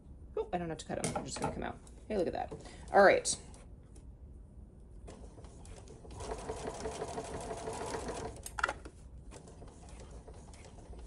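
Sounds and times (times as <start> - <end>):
sewing machine stitching: 5.1 - 8.5.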